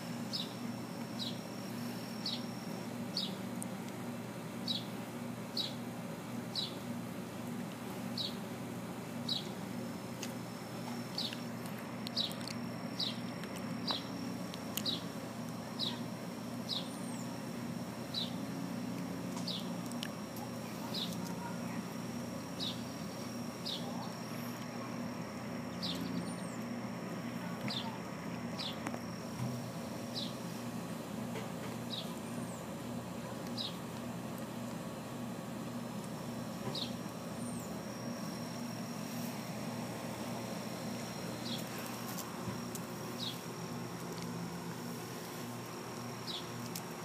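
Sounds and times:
small bird chirping: 0.3s - 0.6s, 1.2s - 1.4s, 2.2s - 3.4s, 4.6s - 4.9s, 5.6s - 5.8s, 6.5s - 6.8s, 8.2s - 8.4s, 9.2s - 9.6s, 11.1s - 11.5s, 12.1s - 12.4s, 13.0s - 14.2s, 14.8s - 15.1s, 15.8s - 17.4s, 18.1s - 18.4s, 19.4s - 19.8s, 22.6s - 24.6s, 25.7s - 26.8s, 28.6s - 28.8s, 30.1s - 30.4s, 31.9s - 32.7s, 33.5s - 33.8s, 36.7s - 37.8s, 43.2s - 43.4s, 46.2s - 46.6s.

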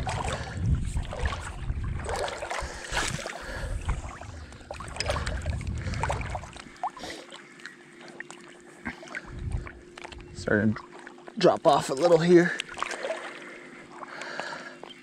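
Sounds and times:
wind rumbling on microphone: 0.0s - 6.8s, 9.2s - 10.8s
small waves lapping and splashing: 0.0s - 15.0s.

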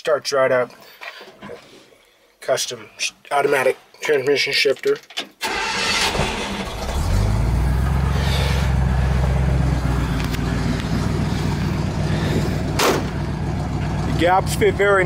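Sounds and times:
engine cranking: 5.4s - 15.0s
engine idling: 5.4s - 15.0s.

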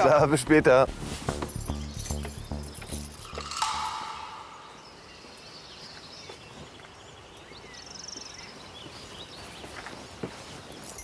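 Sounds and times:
background music: 0.0s - 5.2s
small birds chirping: 0.0s - 11.0s
bird trill: 1.6s - 6.4s.

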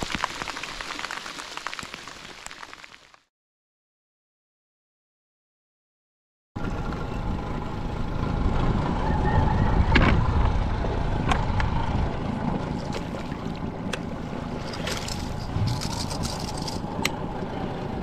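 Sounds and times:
outboard motor running: 10.1s - 18.0s.

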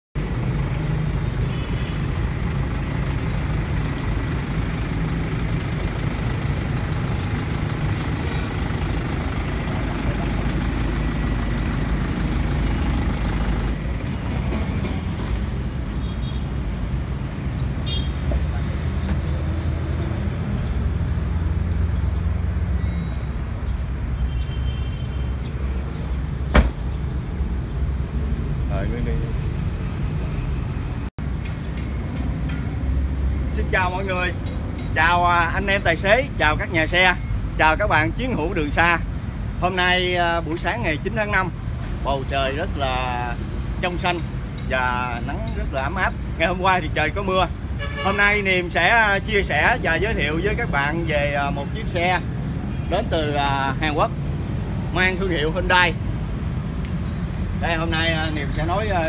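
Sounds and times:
diesel engine idling: 0.2s - 15.9s.

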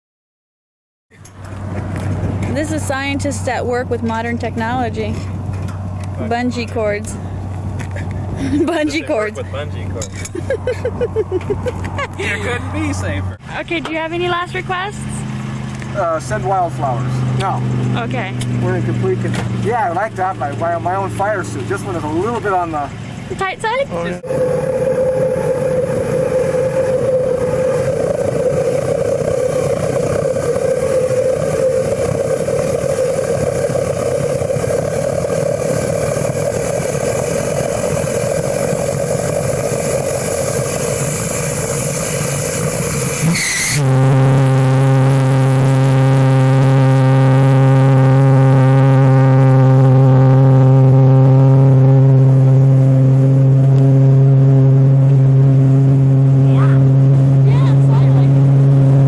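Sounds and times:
jet engine roaring: 1.3s - 7.3s, 14.0s - 59.0s.

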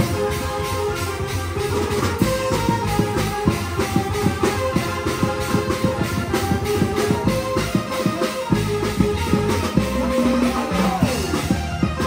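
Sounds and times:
fast percussion beat: 0.0s - 12.0s
sustained melodic notes: 0.0s - 12.0s.

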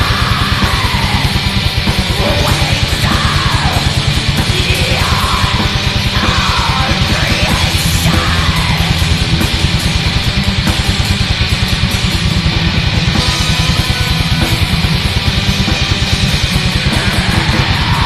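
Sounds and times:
black metal music: 0.0s - 18.0s
distorted guitars: 0.0s - 18.0s
rapid drumming: 0.0s - 18.0s.

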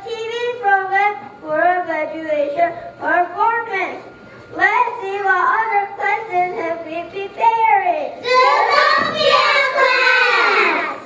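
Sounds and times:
young children singing: 8.2s - 11.0s.

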